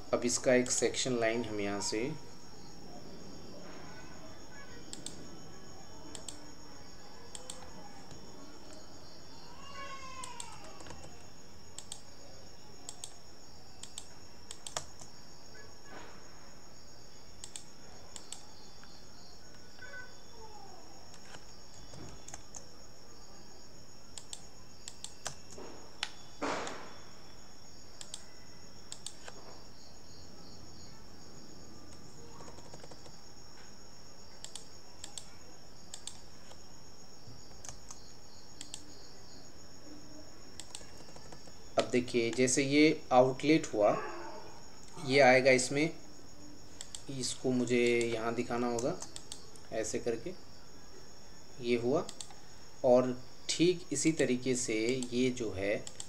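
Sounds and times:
mouse clicks: 0:04.9 - 0:05.2, 0:06.1 - 0:06.4, 0:07.3 - 0:08.8, 0:11.8 - 0:12.1, 0:12.9 - 0:13.2, 0:13.8 - 0:15.1, 0:17.4 - 0:18.9, 0:21.1 - 0:22.6, 0:24.2 - 0:26.9, 0:28.0 - 0:28.3, 0:28.9 - 0:29.4, 0:34.4 - 0:35.3, 0:35.9 - 0:36.6, 0:38.6 - 0:38.9, 0:40.6 - 0:42.4, 0:46.8 - 0:47.1, 0:48.8 - 0:49.7, 0:52.1 - 0:52.4
keyboard keystrokes: 0:10.2 - 0:11.2, 0:13.8 - 0:15.1, 0:21.1 - 0:22.7, 0:28.0 - 0:28.2, 0:32.4 - 0:33.1.

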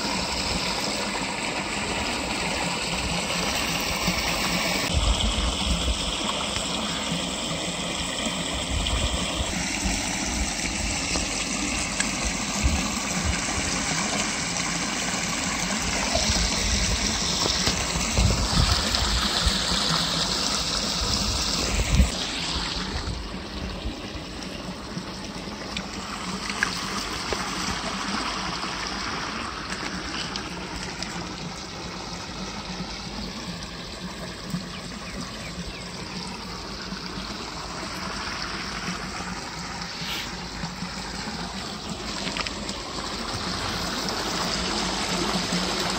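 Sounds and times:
water rushing over a weir: 0:00.0 - 0:45.9.

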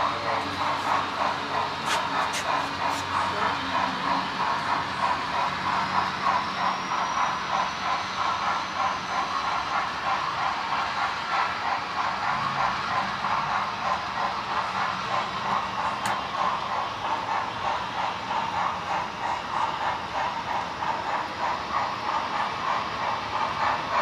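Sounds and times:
model steam locomotive chuffing: 0:00.0 - 0:24.0
steam hiss: 0:00.0 - 0:24.0.

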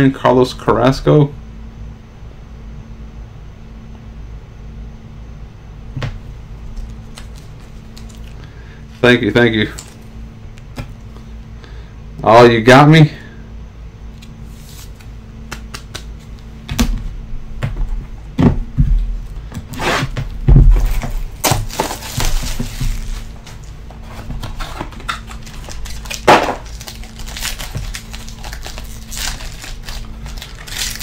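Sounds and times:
foil wrapping crinkling: 0:06.6 - 0:10.0, 0:20.8 - 0:31.0.

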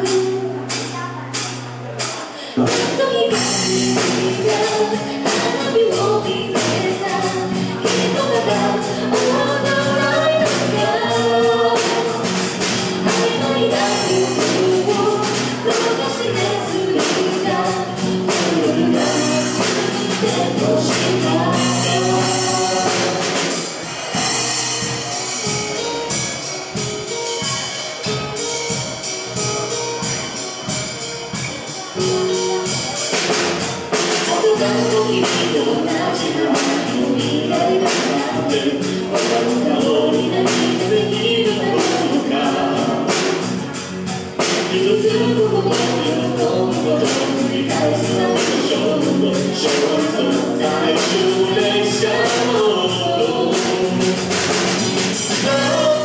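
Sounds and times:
live band playing pop song: 0:00.0 - 0:56.0
woman singing: 0:02.4 - 0:23.6, 0:34.0 - 0:43.7, 0:44.4 - 0:56.0.

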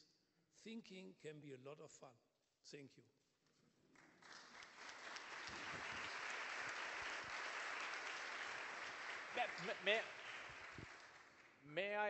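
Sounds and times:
audience applauding: 0:04.0 - 0:11.6.

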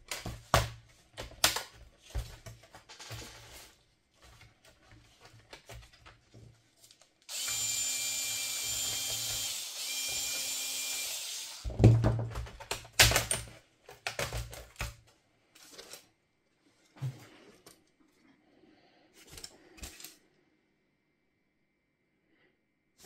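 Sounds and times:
electric screwdriver whirring: 0:07.3 - 0:11.7.

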